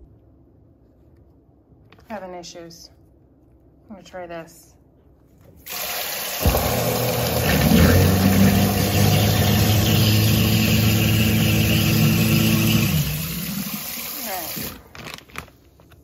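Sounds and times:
faucet water running into sink: 5.7s - 14.8s
garbage disposal motor humming: 5.7s - 14.9s.

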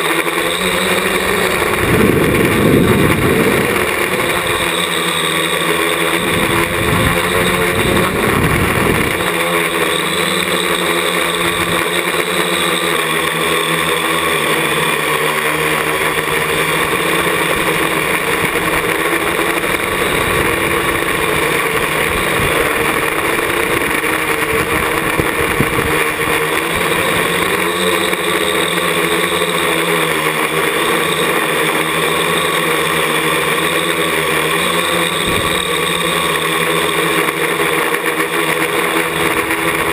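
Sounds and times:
quadcopter motors whirring: 0.0s - 39.9s
wind buffeting on microphone: 0.6s - 4.8s, 6.1s - 9.5s, 19.4s - 26.9s, 35.2s - 35.7s.

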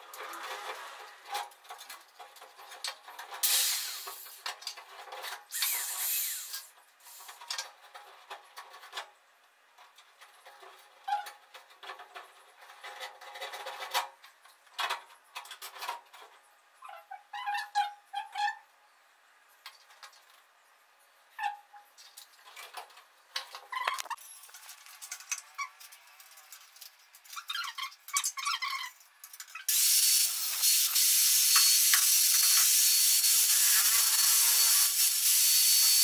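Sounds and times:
scraping and rubbing: 0.0s - 3.5s
loud scraping noise: 0.1s - 1.5s.

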